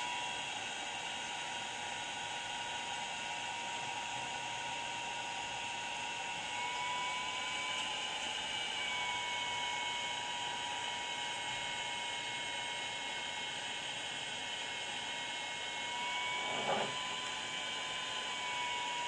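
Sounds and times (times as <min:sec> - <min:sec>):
cooling fan whirring: 0:00.0 - 0:19.0
thin high whine: 0:15.8 - 0:17.7.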